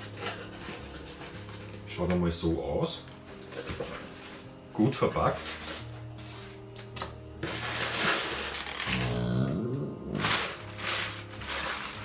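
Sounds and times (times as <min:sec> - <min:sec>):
plastic packing material crinkling: 0:05.3 - 0:05.9, 0:07.4 - 0:09.3, 0:10.1 - 0:12.0.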